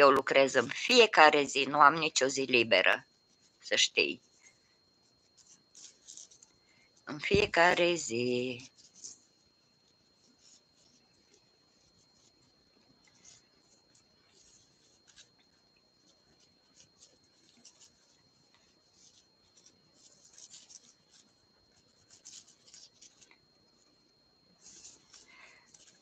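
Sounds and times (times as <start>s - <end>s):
faint high whine: 0.0s - 26.0s
crochet hook rustling yarn: 5.3s - 9.4s, 10.0s - 12.4s, 13.0s - 23.4s, 24.6s - 26.0s.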